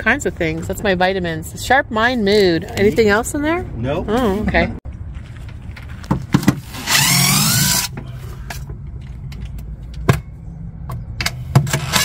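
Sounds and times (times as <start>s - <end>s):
impact driver running: 6.5s - 7.9s.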